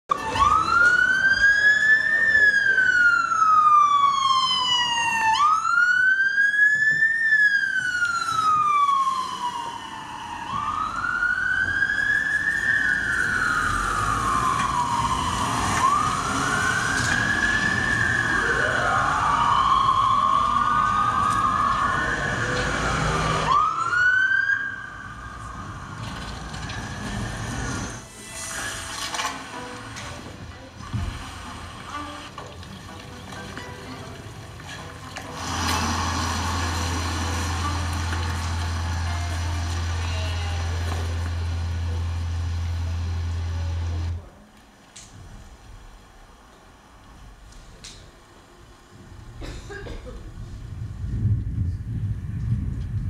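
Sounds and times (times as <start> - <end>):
second siren: 0.1 - 29.0
siren wailing: 0.1 - 29.7.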